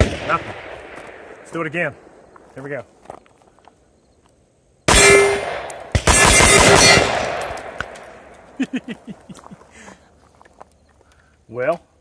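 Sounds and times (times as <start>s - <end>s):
rifle gunshots echoing: 0.0s - 2.1s, 4.9s - 8.2s.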